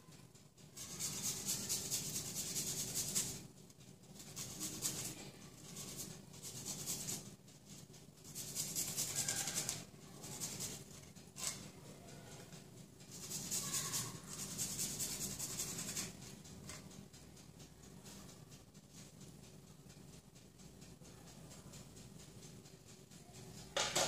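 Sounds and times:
garlic grating on metal grater: 0.8 - 3.4, 4.2 - 11.7, 12.4 - 16.9.

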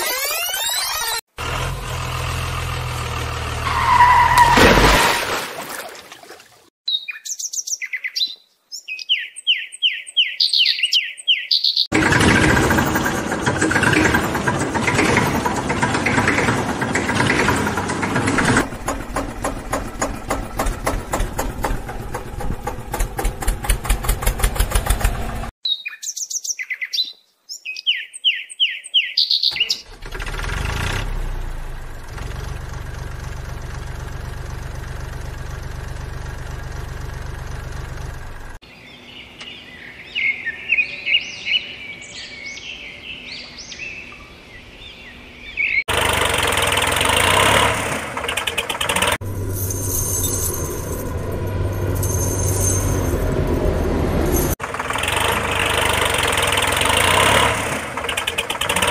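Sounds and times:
high bird chirps: 6.9 - 11.9, 25.6 - 29.9
engine idling: 11.9 - 25.5, 29.8 - 38.6, 45.9 - 53.2, 54.6 - 58.9
engine running with knock: 11.9 - 25.5, 45.9 - 53.3, 54.4 - 58.9.

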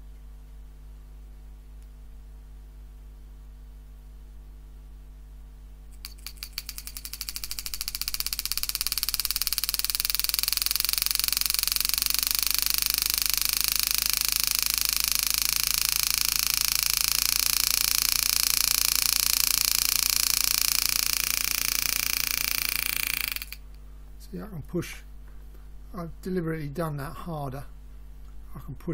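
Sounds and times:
engraving machine hammering steel: 6.0 - 23.6.

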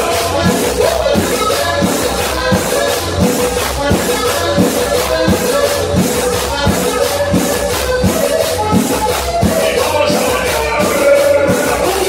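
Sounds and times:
cumbia music over sound system: 0.0 - 12.0.

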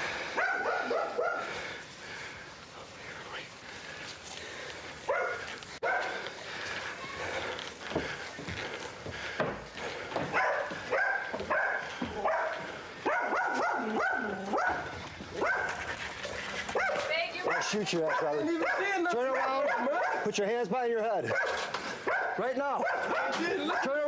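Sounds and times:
dog barking: 0.4 - 1.5, 5.1 - 6.2, 10.3 - 15.8, 16.7 - 20.4, 21.3 - 24.0.

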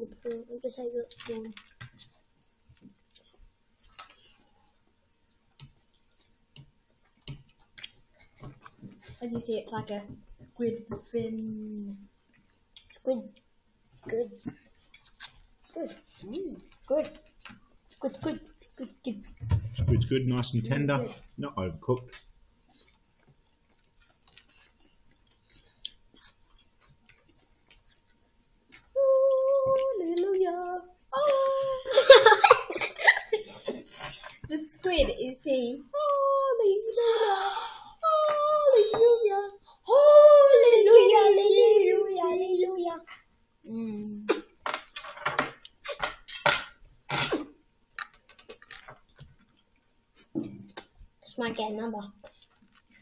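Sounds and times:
faint chewing: 0.0 - 19.4, 21.1 - 30.4, 43.0 - 51.4, 52.0 - 53.0
clicks and crackles of eating: 0.1 - 10.6, 11.6 - 19.5, 21.9 - 30.3, 43.0 - 51.3, 52.0 - 53.0.

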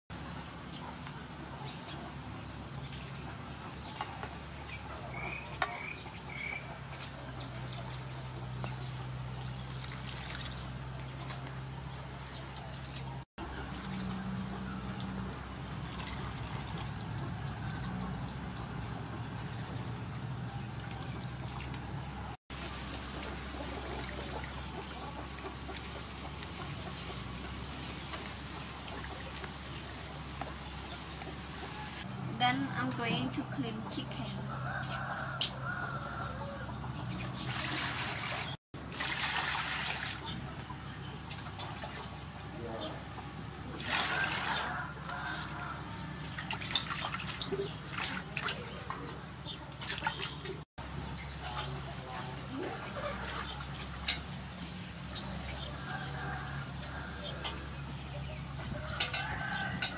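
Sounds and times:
liquid sloshing and trickling: 8.8 - 18.2, 18.8 - 31.7, 37.2 - 42.5, 43.7 - 51.0.

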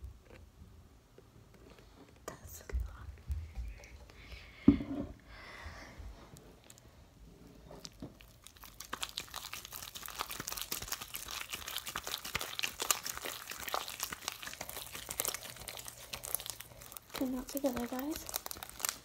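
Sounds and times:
slime crackling and popping: 7.8 - 19.0.

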